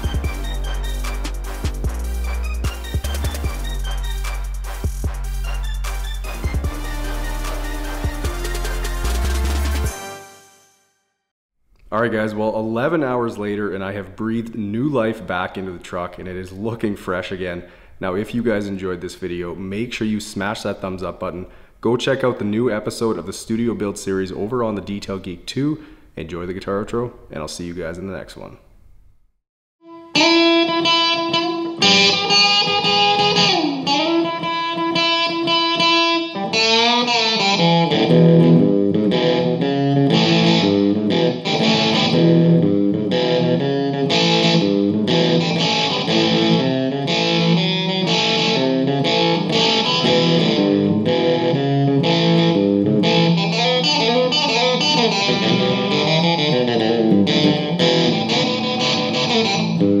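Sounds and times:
solo electric guitar: 0:29.9 - 1:00.0.

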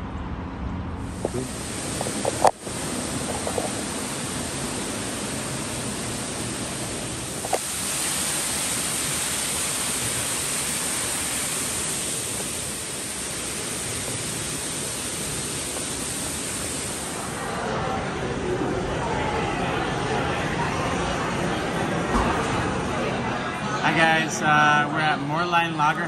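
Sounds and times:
indoor waterfall splashing: 0:01.2 - 0:17.4.

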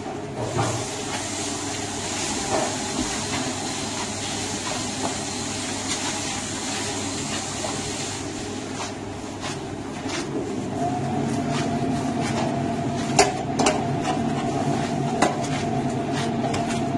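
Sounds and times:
meat grinder motor humming: 0:09.9 - 0:16.9.

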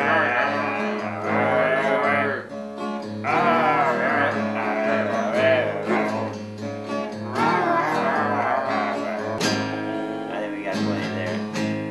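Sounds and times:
man singing: 0:00.0 - 0:02.4, 0:03.2 - 0:06.4, 0:07.2 - 0:09.6
acoustic guitar: 0:00.0 - 0:11.9.

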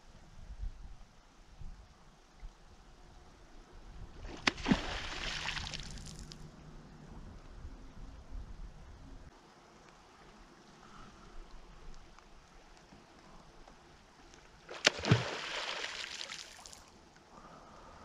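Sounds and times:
hissing splash: 0:04.3 - 0:06.4, 0:14.7 - 0:16.9.

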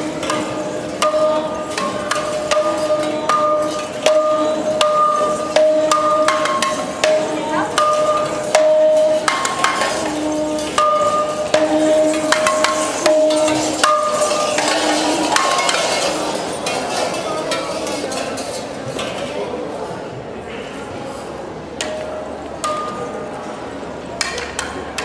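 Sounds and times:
tin cans and bottles clanking: 0:00.0 - 0:18.6.

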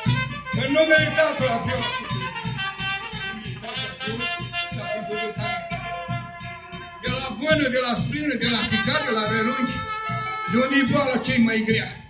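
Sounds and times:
drum beating: 0:00.0 - 0:12.0
reedy wind instrument melody: 0:00.0 - 0:12.0.

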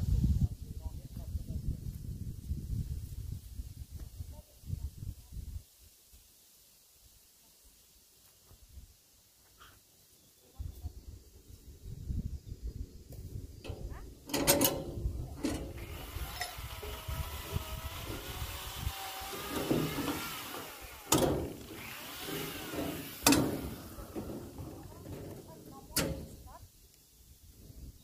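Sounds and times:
distant chainsaw running: 0:15.4 - 0:25.4.

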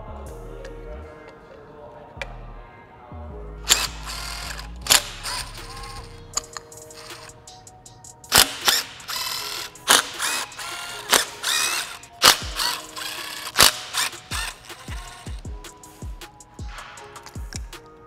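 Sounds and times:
background music with beat: 0:00.0 - 0:18.0
ratchet wrench clicking: 0:03.7 - 0:15.5.

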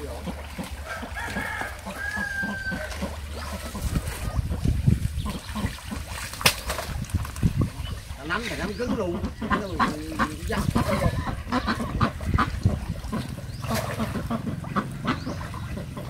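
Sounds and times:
splashing in muddy water: 0:00.0 - 0:16.0
rooster crowing: 0:00.8 - 0:03.0
sharp slap: 0:06.3 - 0:06.9.

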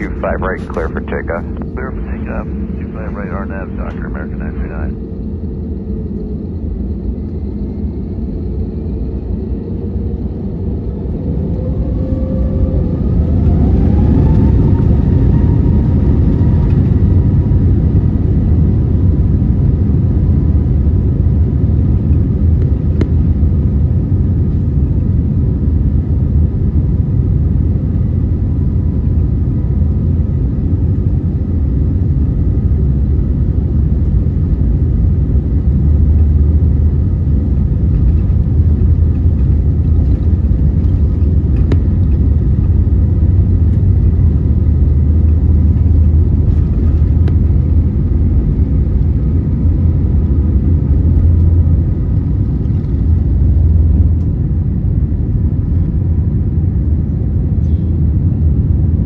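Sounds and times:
jet engines spooling up: 0:00.0 - 0:17.2.

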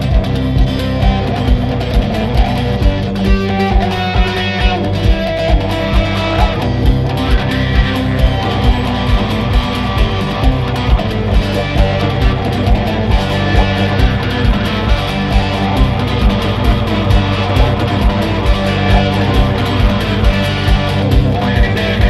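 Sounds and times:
guitar-led music with steady beat: 0:00.0 - 0:22.0.

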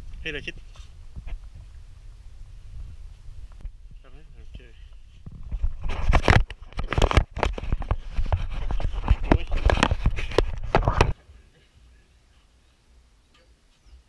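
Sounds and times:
camera handling knocks and clatter: 0:05.3 - 0:11.2.

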